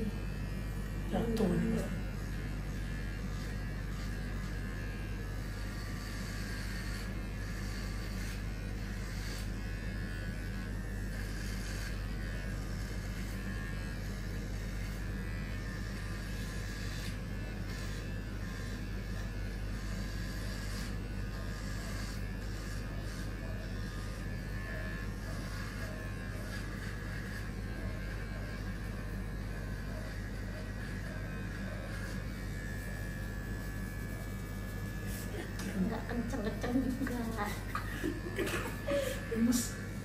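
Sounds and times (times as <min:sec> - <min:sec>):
electric hair clippers buzzing: 0:00.0 - 0:40.0.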